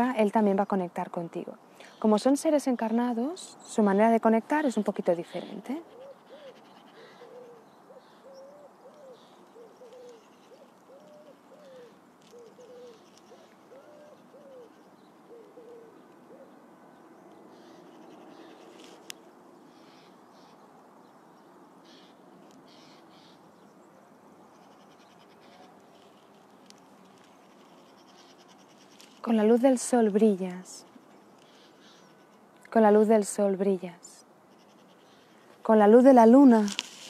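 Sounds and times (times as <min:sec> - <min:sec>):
dove cooing: 0:05.4 - 0:16.7.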